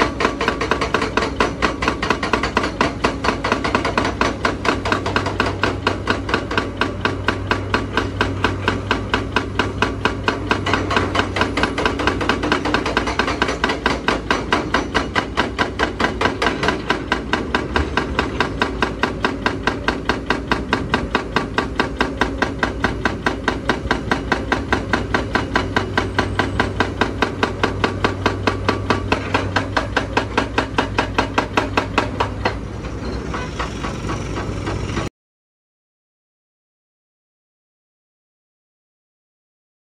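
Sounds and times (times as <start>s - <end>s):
hydraulic breaker hammering rock: 0.0s - 35.1s
diesel engine drone: 31.3s - 35.1s.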